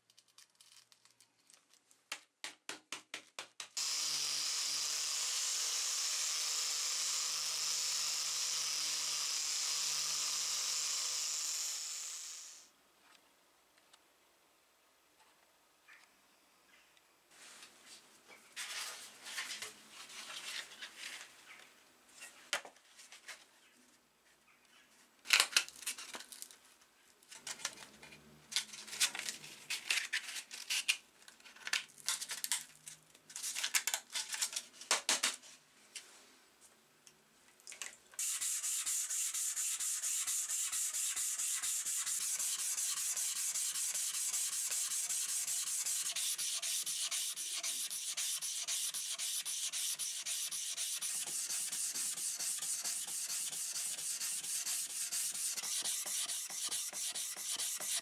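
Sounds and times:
sanding block click: 38.2s - 58.0s
sandpaper rustling: 38.2s - 58.0s
wet sanding of metal: 38.2s - 58.0s.

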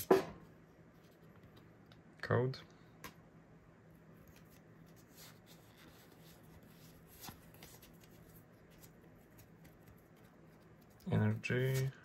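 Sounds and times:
cards sliding and rustling: 4.2s - 12.0s.

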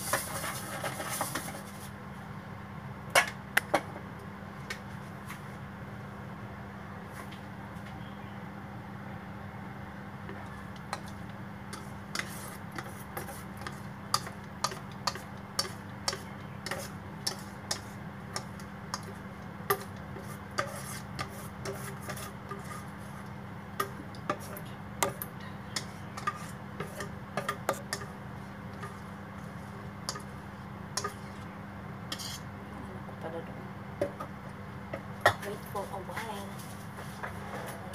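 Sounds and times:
utensil stirring batter in bowl: 0.0s - 1.9s, 10.3s - 32.5s.

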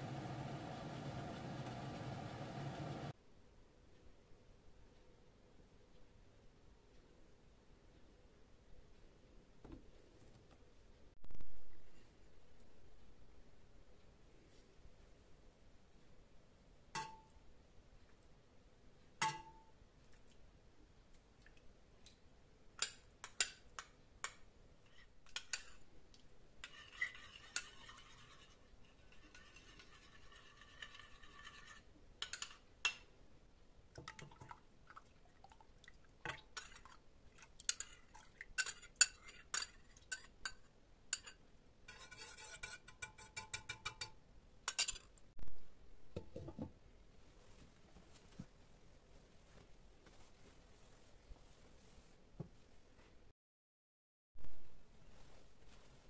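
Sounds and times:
spoon clinking against metal pot: 17.0s - 17.4s, 38.6s - 45.1s.

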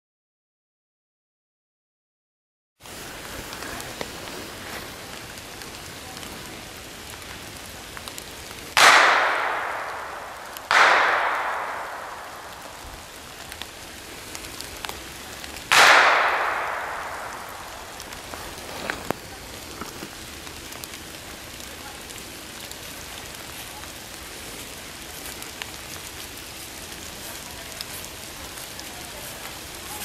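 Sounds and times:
gunshots echoing: 8.8s - 13.5s, 15.7s - 18.7s.

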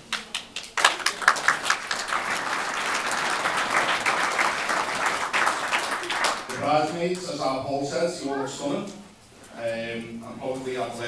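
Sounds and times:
guests applauding: 0.0s - 7.3s.

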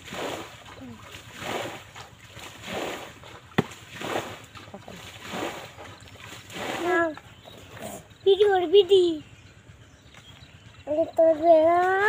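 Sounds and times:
water splashing from pan: 0.0s - 7.2s.

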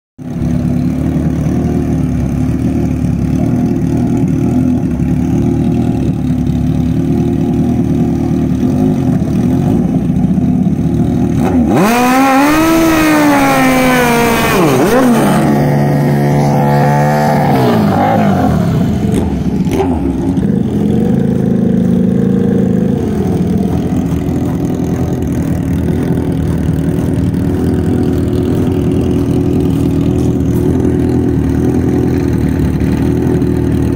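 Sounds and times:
motorcycle engine revving: 0.2s - 33.9s
rear tyre spinning: 22.8s - 33.9s.

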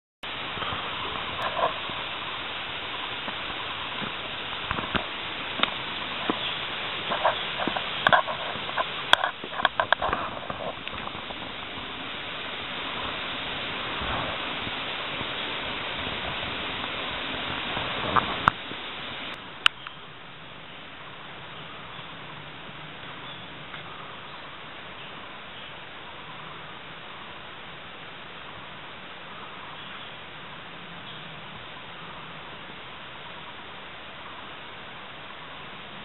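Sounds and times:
steady hiss: 0.2s - 36.0s
crackling of dry leaves underfoot: 0.3s - 20.0s.

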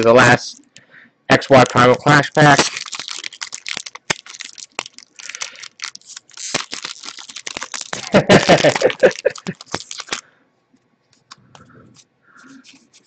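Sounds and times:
foil wrapper crinkling and tearing: 1.5s - 10.3s, 12.4s - 13.0s.

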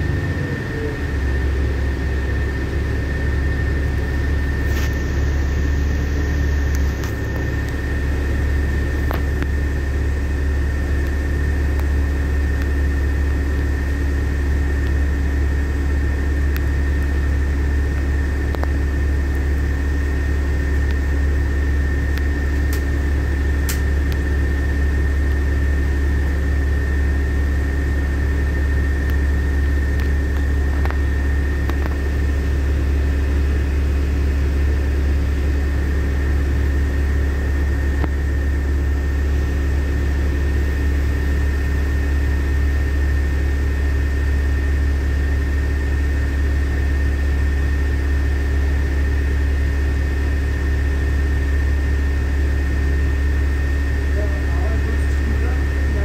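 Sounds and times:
bus engine idling: 0.0s - 56.0s
thin high whine: 4.2s - 10.0s.

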